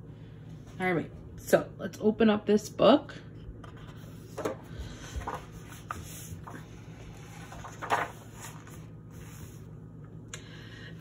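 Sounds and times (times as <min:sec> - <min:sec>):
book pages rustling: 0:03.6 - 0:09.7
hands smoothing pages: 0:03.7 - 0:09.7.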